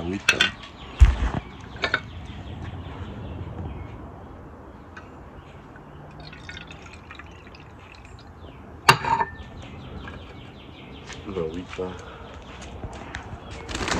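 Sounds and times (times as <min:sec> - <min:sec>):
sharp knock: 0:01.0 - 0:01.4
water trickling into plastic cup: 0:05.8 - 0:08.4.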